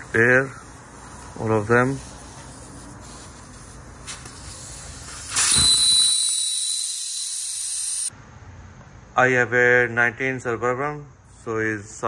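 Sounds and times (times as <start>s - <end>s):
air hissing from tire valve: 0.0s - 8.1s.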